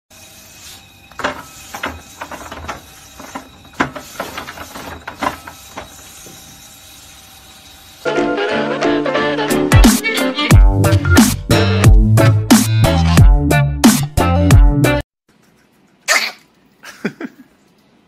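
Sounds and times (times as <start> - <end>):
rotating brush hissing: 0.1 - 8.8
knocks and clunks: 1.2 - 6.6
music: 8.1 - 15.0.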